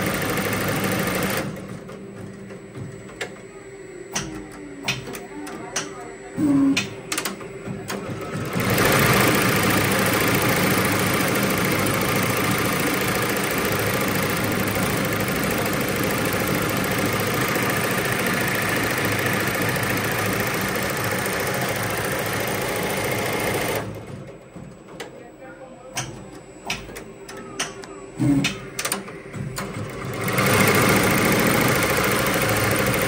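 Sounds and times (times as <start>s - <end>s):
embroidery machine stitching: 0.0s - 2.4s, 6.4s - 24.3s, 29.6s - 33.0s.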